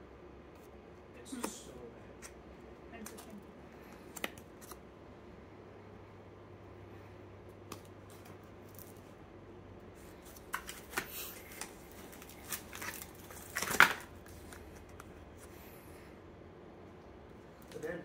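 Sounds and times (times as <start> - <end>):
faint steady hum: 0.0 - 18.0
plastic packages crinkling: 10.2 - 15.0.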